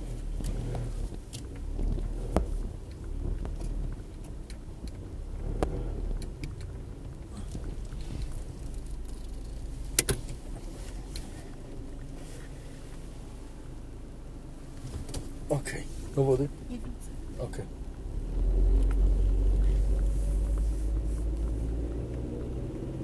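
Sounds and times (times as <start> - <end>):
car engine and road rumble: 0.0 - 23.0
small clicks and rattles: 0.1 - 13.1.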